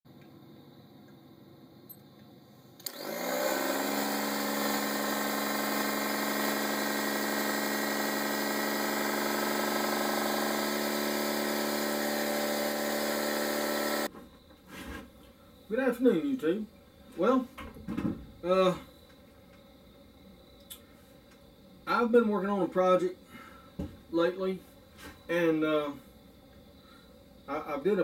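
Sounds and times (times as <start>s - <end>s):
air compressor switch click: 2.8s - 3.0s
electric air compressor running: 2.8s - 14.1s.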